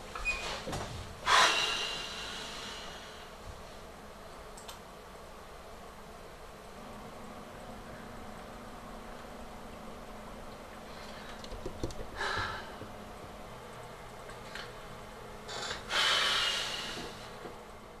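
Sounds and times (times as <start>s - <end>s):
steady low hum: 0.0s - 18.0s
man breathing: 1.2s - 3.4s, 12.1s - 12.9s, 15.6s - 17.4s.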